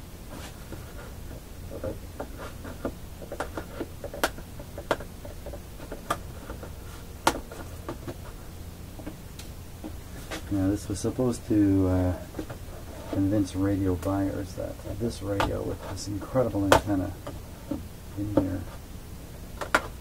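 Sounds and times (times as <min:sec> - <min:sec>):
faint low hum: 0:00.0 - 0:20.0
sharp clicks and knocks: 0:19.6 - 0:20.0.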